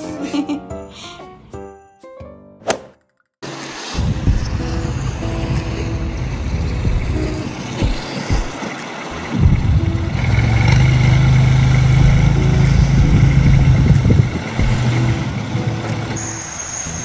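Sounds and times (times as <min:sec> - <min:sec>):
vehicle engine humming: 0:03.4 - 0:17.0.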